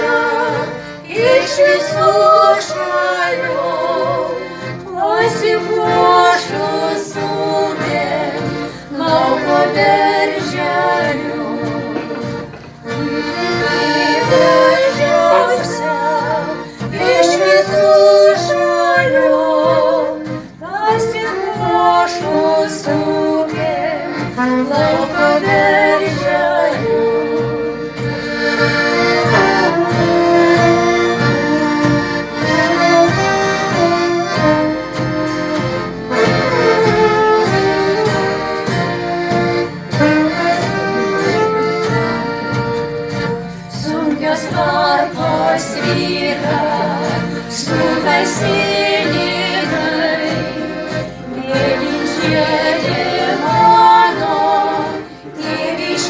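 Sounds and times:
women singing: 0.0 - 27.8, 43.7 - 56.0
accordion: 0.0 - 56.0.

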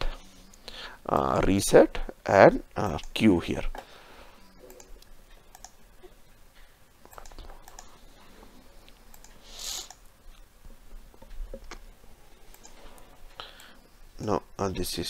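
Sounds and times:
computer mouse clicking: 4.6 - 5.8, 7.0 - 8.0, 8.8 - 10.4, 12.5 - 13.8
brief hiss: 9.4 - 10.0.

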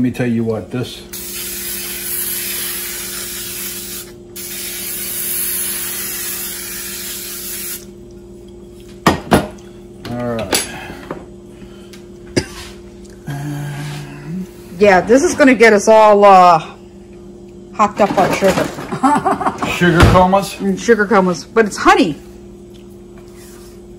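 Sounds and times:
aerosol spray can hissing: 1.1 - 7.9.

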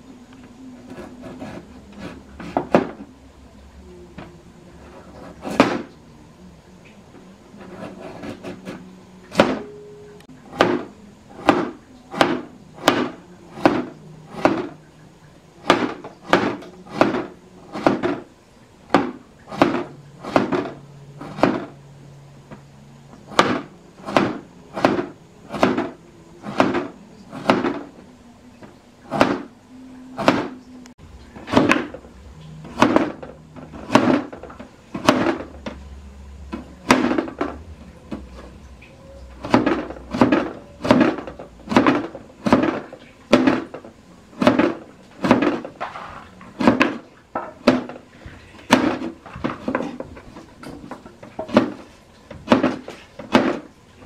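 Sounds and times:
cleaver chopping on cutting board: 5.0 - 5.9, 7.7 - 9.6, 10.5 - 14.8, 15.6 - 18.2, 18.9 - 21.7, 23.3 - 27.9, 29.1 - 29.5, 30.2 - 30.6, 31.5 - 32.0, 32.8 - 34.4, 35.0 - 35.5, 36.6 - 37.6, 39.4 - 43.7, 44.4 - 45.7, 46.6 - 47.0, 52.5 - 53.7.

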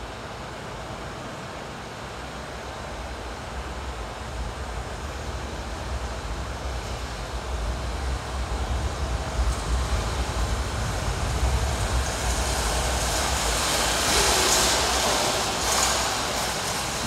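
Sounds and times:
wind buffeting microphone: 3.8 - 17.0.

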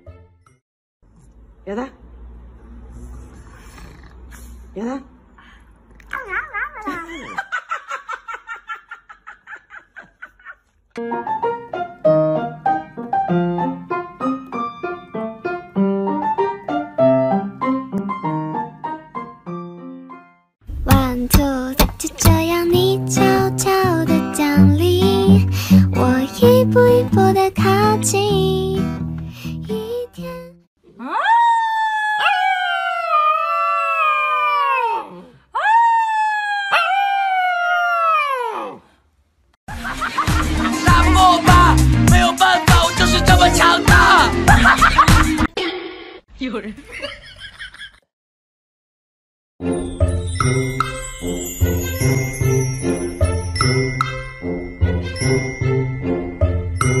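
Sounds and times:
piano melody: 11.0 - 30.6
puppy howling: 31.0 - 38.8.

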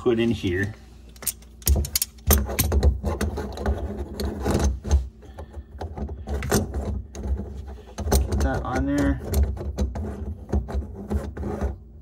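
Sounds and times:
metal clinking and rattling: 1.2 - 4.8.

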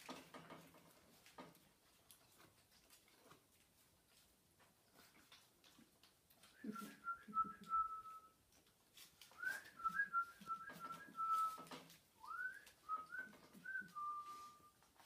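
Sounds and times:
puppy claws clicking on tiles: 0.0 - 6.6
person whistling: 6.6 - 8.4, 9.4 - 14.8.

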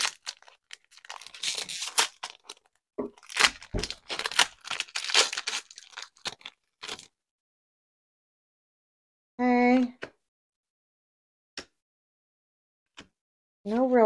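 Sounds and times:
card pack wrapper crinkling and ripping: 0.0 - 7.1.

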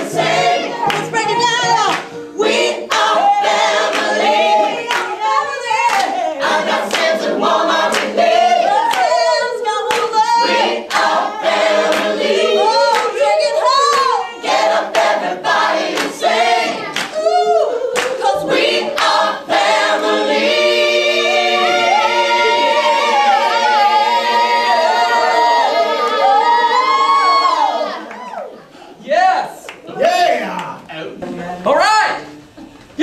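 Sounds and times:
group singing unaccompanied: 0.0 - 28.2
hand claps: 0.9 - 2.1, 2.9 - 3.2, 4.9 - 5.2, 5.8 - 6.1, 6.9 - 7.2, 8.9 - 9.1, 9.9 - 10.2, 12.9 - 13.1, 16.9 - 17.2, 18.0 - 18.3, 19.0 - 19.2.

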